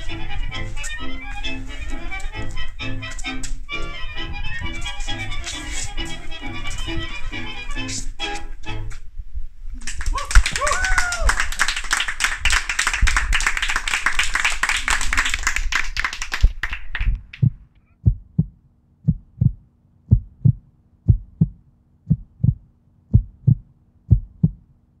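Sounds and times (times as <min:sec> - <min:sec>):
faint low hum: 0:00.0 - 0:25.0
audience applauding: 0:09.8 - 0:17.4
heartbeat double thump: 0:17.4 - 0:24.7.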